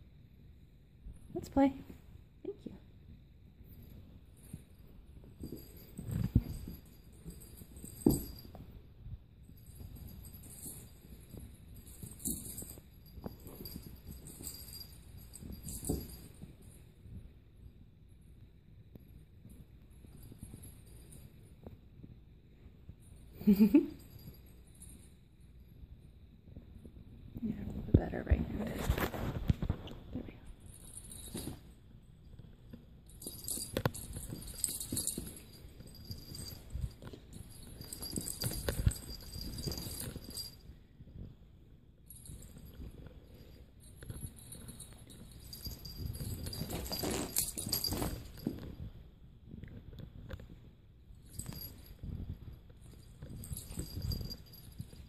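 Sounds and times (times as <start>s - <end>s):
small bell jingling: 1.2s - 41.3s, 42.0s - 55.0s
soft bumps and rustles: 3.6s - 17.6s, 25.8s - 55.0s.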